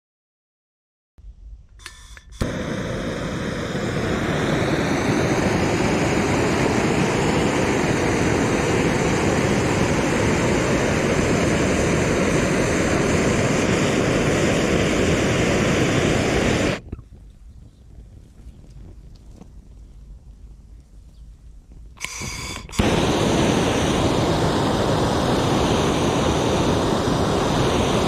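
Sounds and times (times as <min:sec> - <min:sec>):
blowtorch flame rushing: 0:02.4 - 0:16.9, 0:22.0 - 0:28.0.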